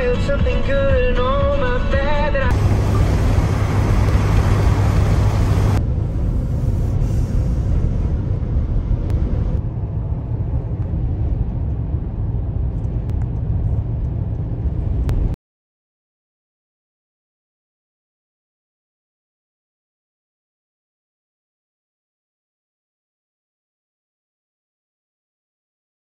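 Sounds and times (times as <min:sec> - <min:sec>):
road and engine rumble in truck cab: 0:00.0 - 0:15.4.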